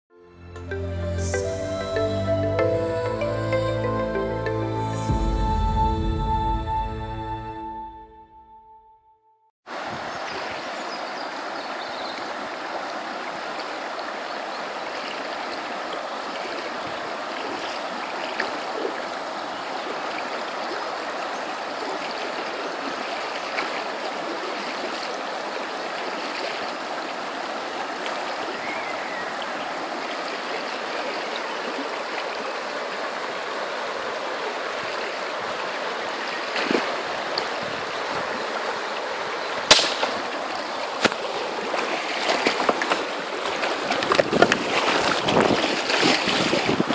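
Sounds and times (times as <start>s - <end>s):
river rushing over stones: 9.7s - 46.9s.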